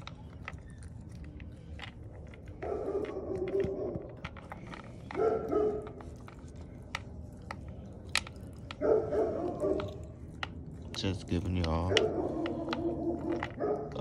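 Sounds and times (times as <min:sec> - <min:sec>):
puppy chewing meat: 0:00.0 - 0:14.0
dog barking: 0:02.6 - 0:04.3, 0:05.1 - 0:06.0, 0:08.7 - 0:10.1, 0:11.6 - 0:14.0.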